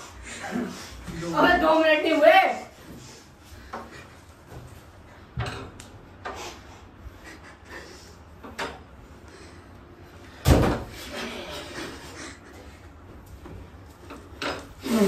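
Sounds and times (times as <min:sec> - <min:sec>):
knocks and bumps in a room: 0:10.3 - 0:11.1
loud thump: 0:10.4 - 0:10.9.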